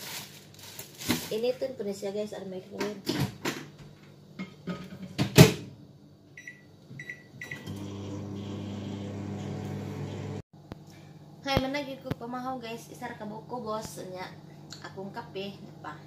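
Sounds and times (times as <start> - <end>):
microwave oven humming: 6.3 - 11.4.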